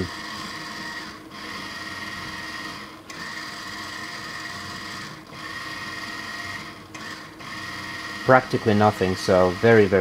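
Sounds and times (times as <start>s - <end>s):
small gear motor whining: 0.0s - 10.0s.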